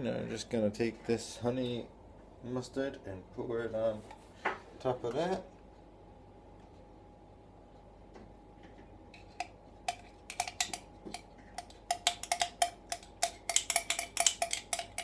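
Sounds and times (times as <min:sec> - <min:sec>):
spoon clinking against dish: 0:09.2 - 0:15.0.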